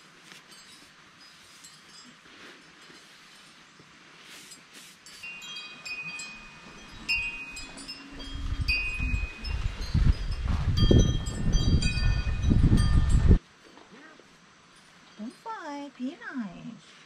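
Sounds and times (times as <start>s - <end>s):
wind chimes ringing: 0.4s - 3.6s, 4.5s - 13.4s.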